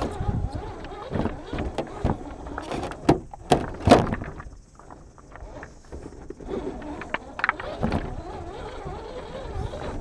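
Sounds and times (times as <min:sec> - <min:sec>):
pebbles crunching and clacking: 0:01.9 - 0:07.8.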